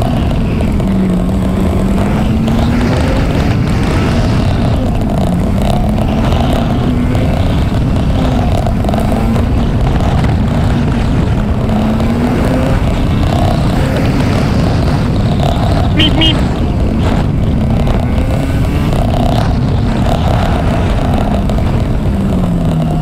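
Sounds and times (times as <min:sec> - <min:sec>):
motorcycle engine running: 0:00.0 - 0:23.0.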